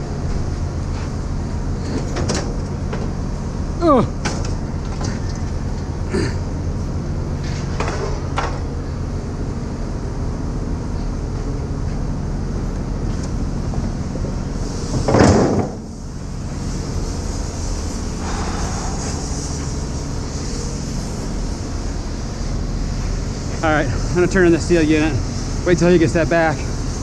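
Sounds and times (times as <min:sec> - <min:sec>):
steady low rumble: 0:15.9 - 0:25.7.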